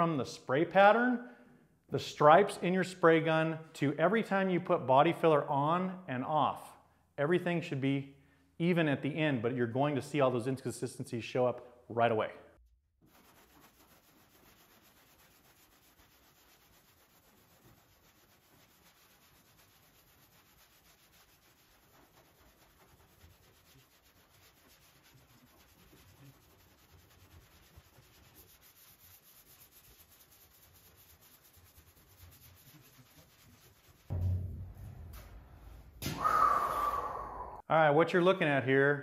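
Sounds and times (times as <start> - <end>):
sanding block scratching: 13.0 - 34.2.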